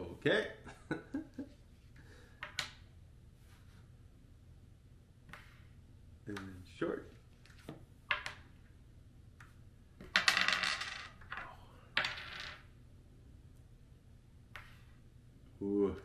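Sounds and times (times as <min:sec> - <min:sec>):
wooden discs clattering on board: 0:07.4 - 0:08.6, 0:10.0 - 0:12.6.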